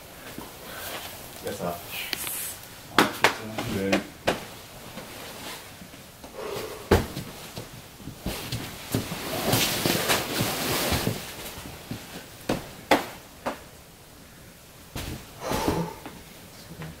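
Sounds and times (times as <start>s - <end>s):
person grunting: 15.4s - 16.2s.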